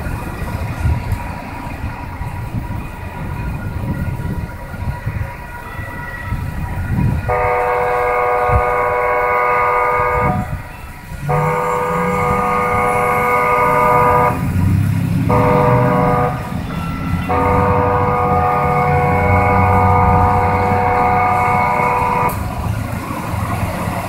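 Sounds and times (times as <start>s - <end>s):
train rumble: 0.0s - 24.0s
train horn blasts: 7.0s - 22.7s.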